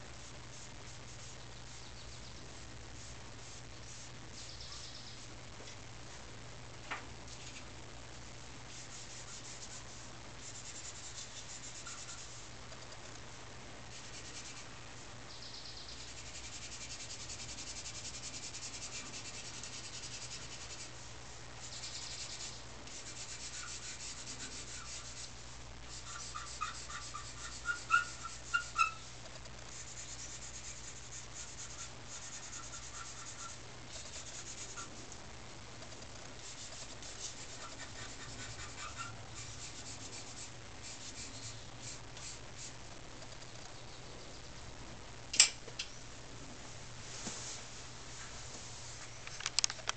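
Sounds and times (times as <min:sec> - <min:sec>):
pencil scratching on paper: 0:16.0 - 0:21.0, 0:21.6 - 0:29.0, 0:29.7 - 0:35.0, 0:35.8 - 0:42.8.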